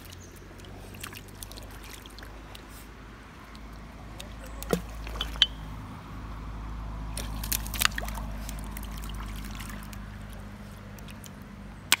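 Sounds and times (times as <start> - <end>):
dog splashing through water: 0.0 - 2.7, 7.1 - 11.4
stony river trickling: 0.0 - 12.0.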